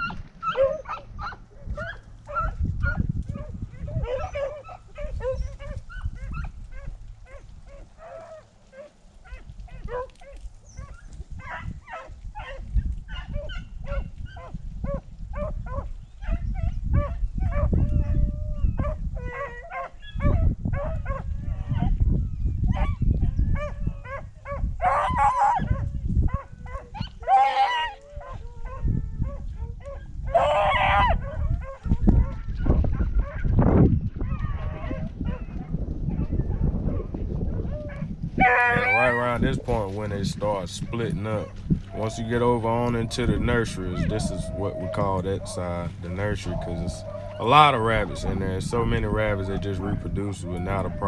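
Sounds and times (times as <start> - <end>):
beagles baying and barking: 0.0 - 33.6, 34.2 - 51.0
low rumble: 39.4 - 51.0.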